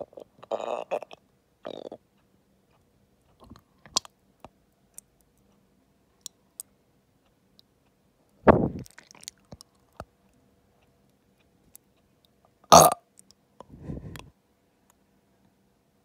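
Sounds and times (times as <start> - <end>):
person gulping: 0.0 - 2.0, 12.7 - 13.0.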